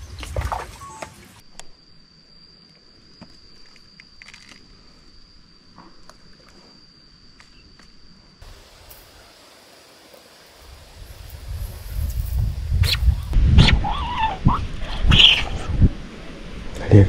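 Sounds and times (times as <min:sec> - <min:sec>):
high-pitched insect trill: 0:00.0 - 0:16.6.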